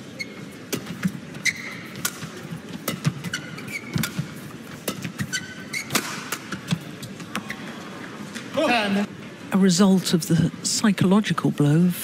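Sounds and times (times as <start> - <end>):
shoes squeaking on court: 0.0 - 7.8
racket striking shuttlecock: 1.9 - 6.8.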